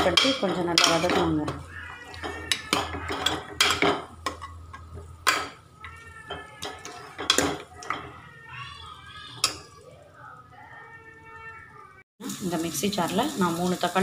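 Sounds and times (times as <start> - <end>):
spoon scraping metal pot: 0.0 - 8.2
light sizzle: 0.0 - 14.0.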